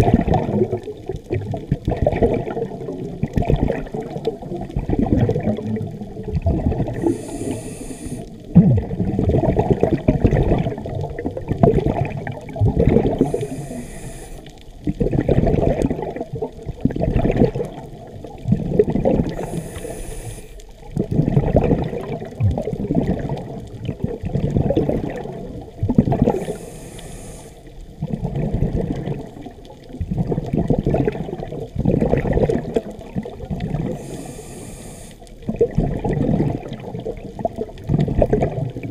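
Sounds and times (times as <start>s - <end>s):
exhaled air bubbling: 0.0s - 38.9s
regulator inhalation hiss: 6.9s - 8.4s, 13.2s - 14.6s, 19.3s - 20.7s, 26.3s - 27.7s, 33.9s - 35.3s.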